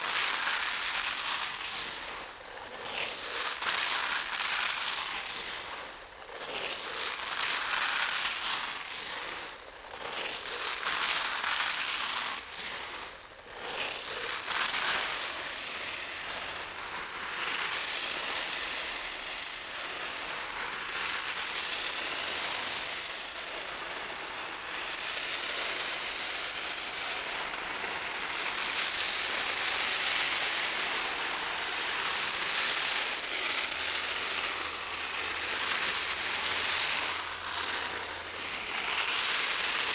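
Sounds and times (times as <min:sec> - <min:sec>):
rice grains pouring onto paper: 0:00.0 - 0:39.9.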